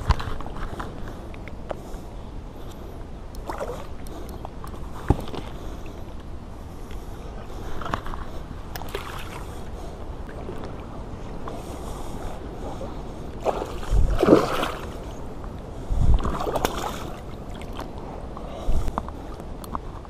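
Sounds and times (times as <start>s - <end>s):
water lapping: 3.4s - 6.0s, 7.4s - 15.2s
fish thrashing and splashing: 13.4s - 15.0s.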